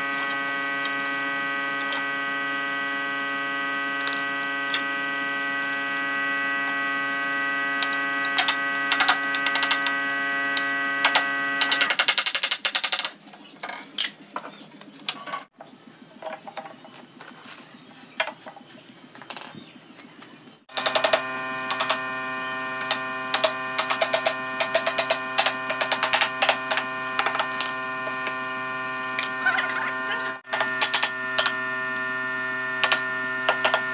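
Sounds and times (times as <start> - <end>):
electric hum: 0.0 - 12.1, 20.7 - 33.9.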